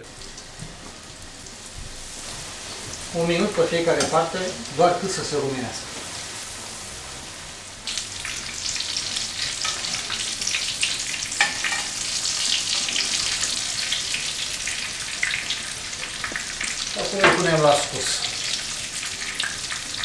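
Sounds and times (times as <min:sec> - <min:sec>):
cutlets sizzling in oil: 0:00.1 - 0:20.0
metal tongs turning food: 0:09.0 - 0:14.3.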